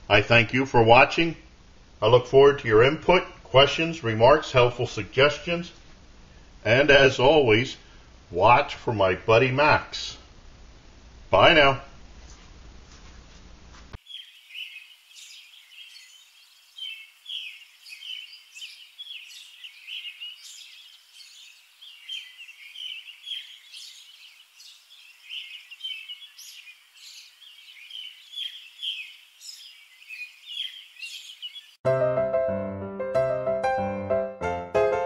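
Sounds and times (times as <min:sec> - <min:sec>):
small birds chirping: 0:14.0 - 0:31.8.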